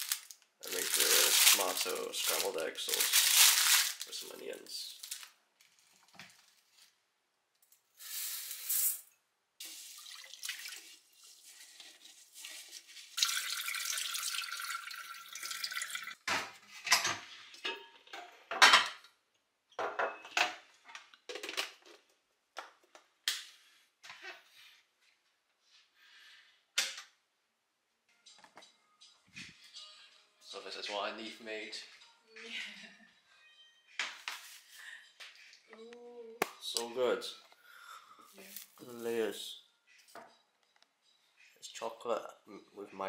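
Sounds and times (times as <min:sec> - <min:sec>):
tap water running into a sink: 0:09.6 - 0:12.0, 0:13.2 - 0:16.2
rice being rinsed in a pot: 0:09.6 - 0:16.1.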